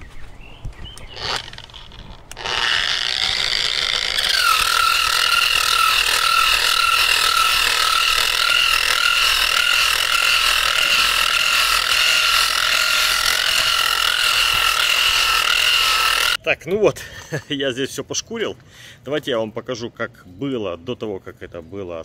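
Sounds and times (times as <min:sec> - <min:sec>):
angle grinder sanding whine: 0:01.0 - 0:16.4.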